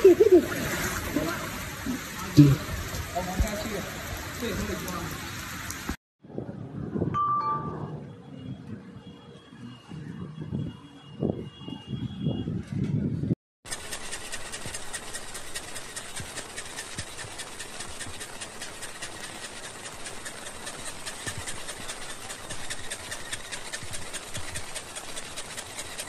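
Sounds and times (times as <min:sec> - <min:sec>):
heavy rain pouring: 0:00.0 - 0:06.0.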